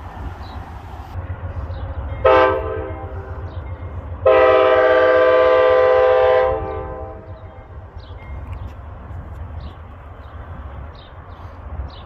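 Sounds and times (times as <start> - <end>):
locomotive air horn blasts: 2.2 - 3.5, 4.2 - 7.4.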